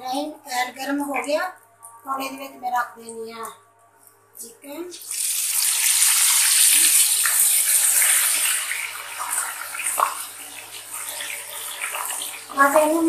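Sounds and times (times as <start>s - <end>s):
chicken sizzling in hot oil: 4.9s - 12.9s.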